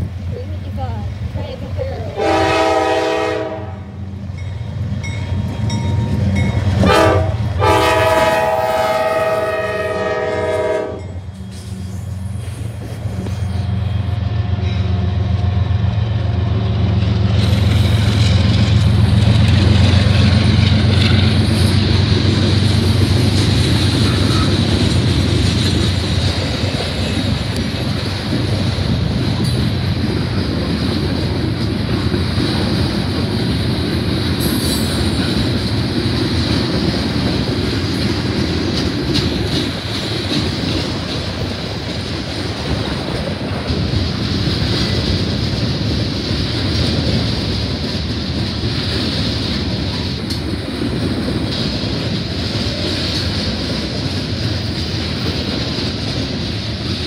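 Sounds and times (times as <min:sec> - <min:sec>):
locomotive air horn: 0:02.2 - 0:04.0, 0:06.8 - 0:11.1
wheel-on-rail noise: 0:03.9 - 0:57.0.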